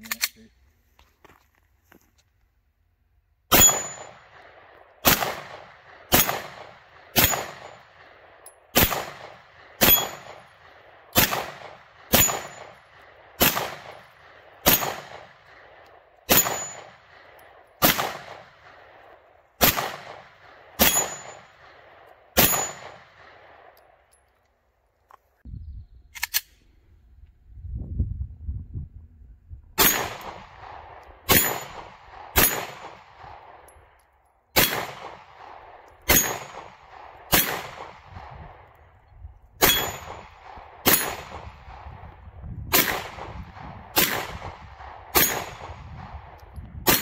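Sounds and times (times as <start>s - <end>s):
pistol shots with echo: 3.5s - 24.0s, 29.8s - 33.9s, 34.5s - 38.8s, 39.6s - 47.0s.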